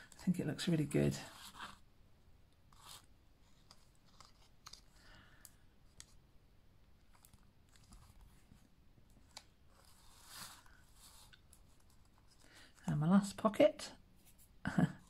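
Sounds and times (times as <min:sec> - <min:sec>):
paper rustling: 0:02.7 - 0:06.2.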